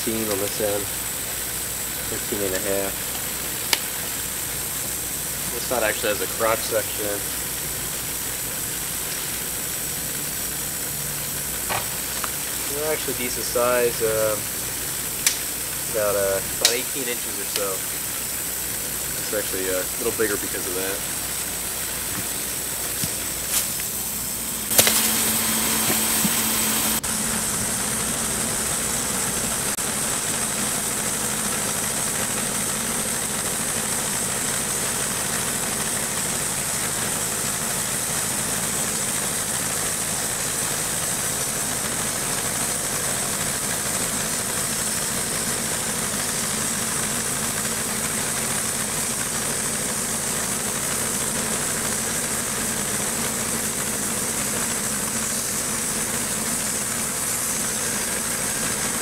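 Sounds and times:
band blade sawing log: 0:00.0 - 0:27.4
sawmill engine under load: 0:00.0 - 0:59.0.

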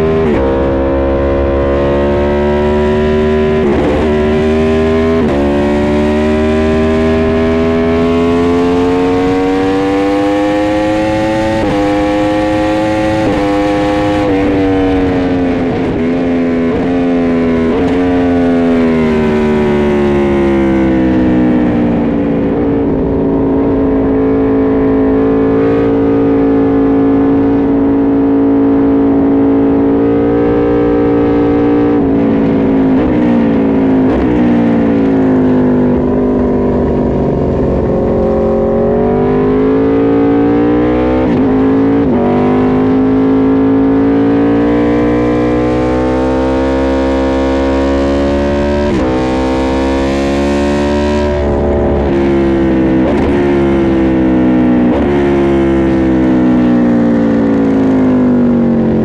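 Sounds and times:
motorcycle engine accelerating: 0:00.0 - 0:59.0
wind rush: 0:36.6 - 0:39.2.

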